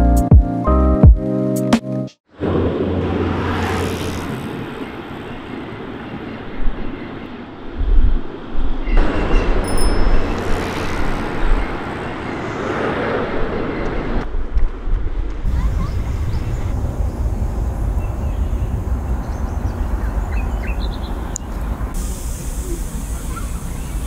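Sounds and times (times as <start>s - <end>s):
broad rushing noise: 2.3s - 24.0s
road traffic rumble: 2.3s - 24.0s.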